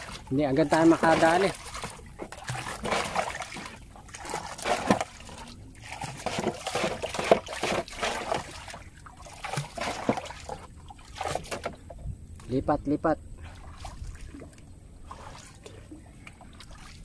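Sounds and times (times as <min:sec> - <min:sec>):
water sloshing and trickling: 0:00.0 - 0:17.0
water splashing: 0:00.0 - 0:17.0.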